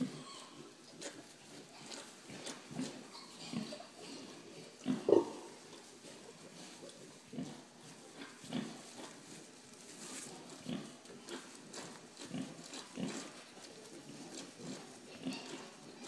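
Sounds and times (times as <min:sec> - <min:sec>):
piglets grunting: 0:01.8 - 0:07.7, 0:14.0 - 0:16.0.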